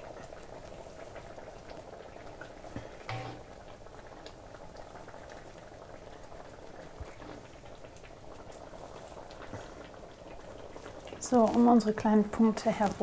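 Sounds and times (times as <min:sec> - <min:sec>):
curry bubbling with small pops: 0:00.0 - 0:13.0.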